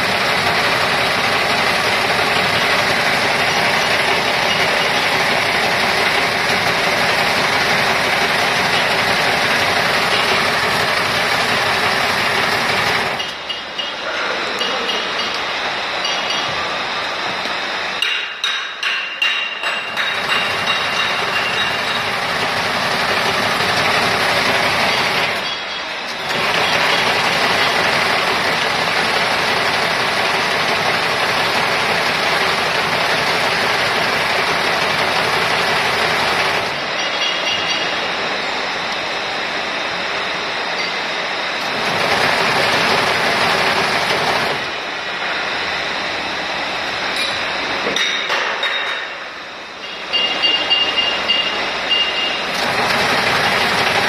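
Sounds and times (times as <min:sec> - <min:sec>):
braiding machine metallic clatter: 0:00.0 - 0:16.6, 0:18.0 - 0:38.0, 0:41.6 - 0:44.8, 0:52.4 - 0:54.0.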